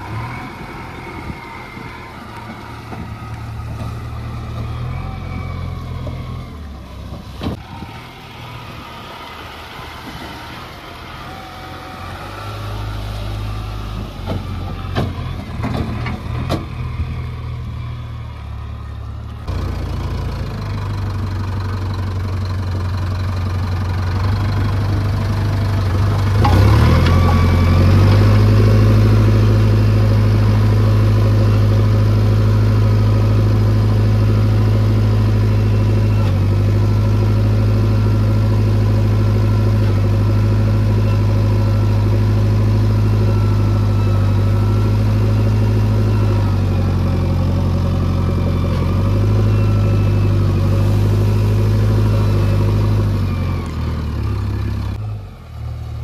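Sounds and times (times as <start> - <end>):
heavy diesel engine revving: 0.0 - 56.0.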